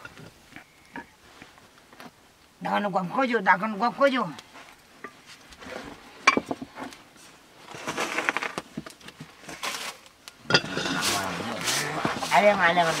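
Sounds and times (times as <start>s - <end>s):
flour rustling in a basket: 10.8s - 13.0s.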